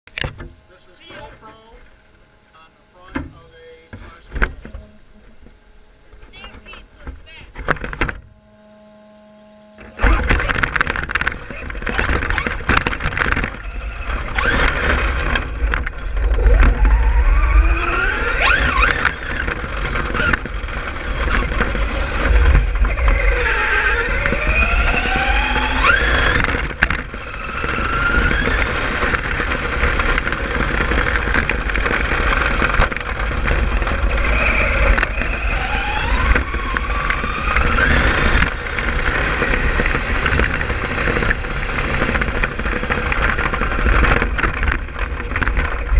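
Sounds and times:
electric motor whine: 0.1s - 45.9s
knocks from bumps: 6.3s - 8.5s
tyres rumbling on gravel: 9.8s - 45.9s.

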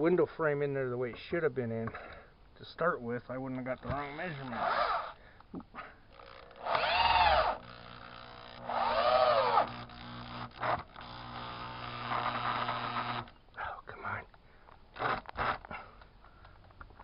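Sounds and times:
power drill driving screws: 3.8s - 5.2s, 6.1s - 13.4s, 15.0s - 15.8s.

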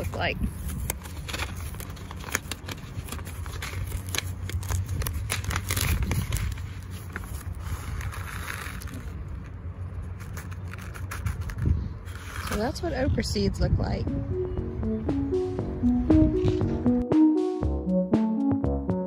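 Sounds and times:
paper packet crinkling: 0.0s - 12.9s.

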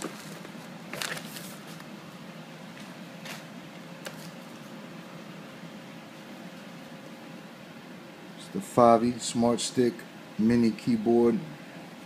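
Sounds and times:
packaging and paper rustling: 0.0s - 1.9s
steady low hum: 0.0s - 12.0s.

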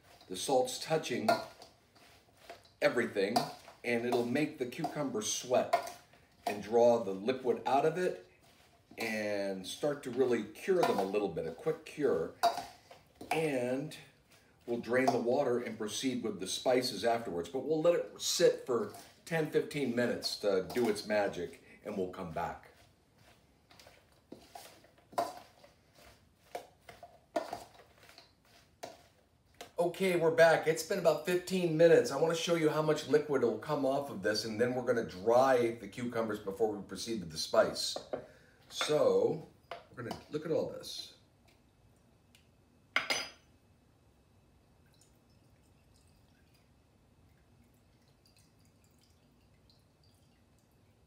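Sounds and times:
liquid trickling and dripping: 44.6s - 51.0s.

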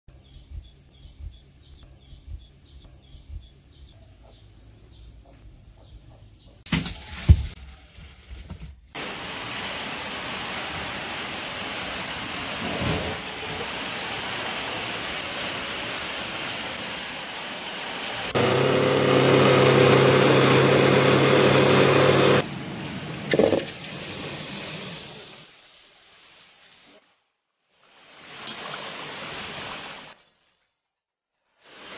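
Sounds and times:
blender motor running: 18.4s - 22.4s.

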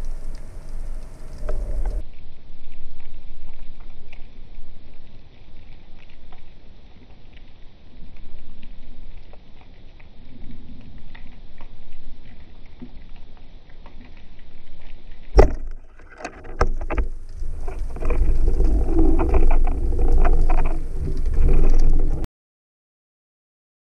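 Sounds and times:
underwater crackling and clicking: 0.0s - 22.3s
speargun firing crack: 15.4s - 15.8s
churning water: 15.4s - 22.2s.

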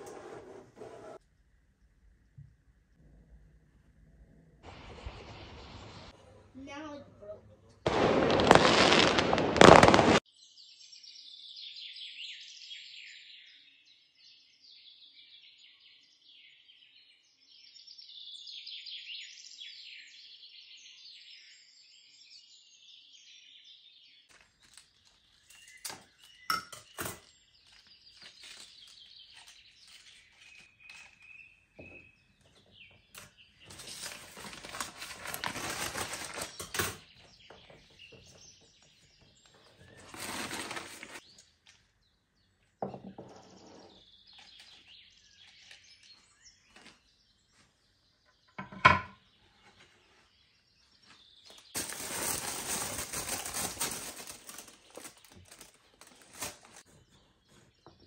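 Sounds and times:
fireworks crackling and bursting: 4.7s - 6.2s, 7.8s - 10.2s
small birds chirping: 5.0s - 35.5s, 36.2s - 48.6s, 49.2s - 58.0s
rustling: 27.6s - 31.3s, 33.6s - 37.0s, 39.8s - 41.3s, 51.5s - 57.2s.

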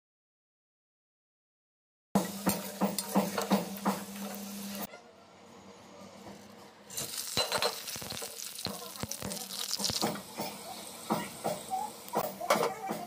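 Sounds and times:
spices sizzling in hot oil: 2.2s - 4.9s, 6.9s - 12.4s.

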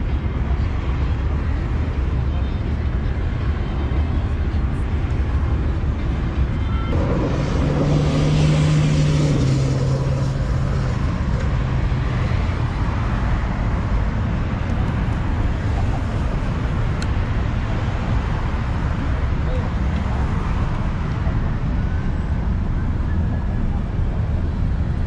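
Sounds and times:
road traffic rumble: 0.0s - 25.0s
vehicle passing close by: 6.9s - 12.8s.

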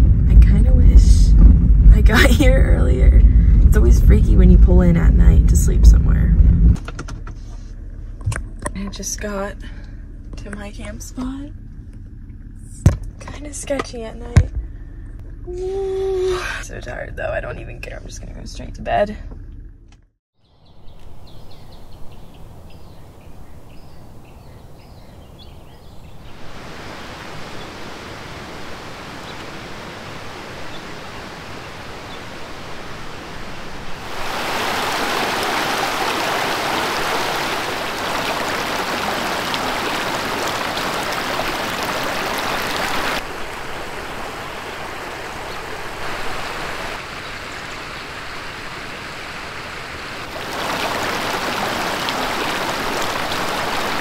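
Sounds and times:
creek water rushing over rocks: 26.3s - 47.8s, 48.7s - 54.0s.

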